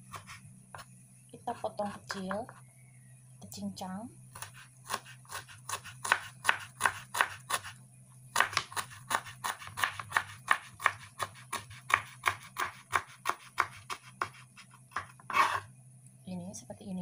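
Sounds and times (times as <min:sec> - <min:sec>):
knife chopping on wooden board: 0:04.4 - 0:07.7, 0:08.4 - 0:15.6.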